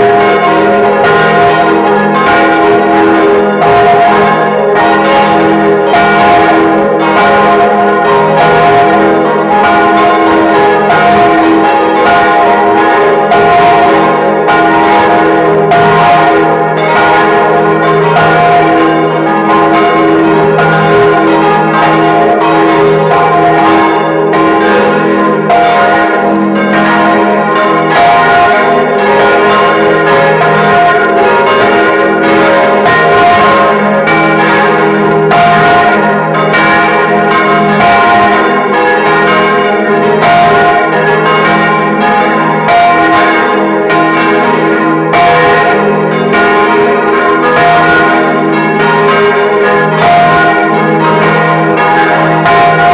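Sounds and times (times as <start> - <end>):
church bells pealing: 0.0 - 52.9.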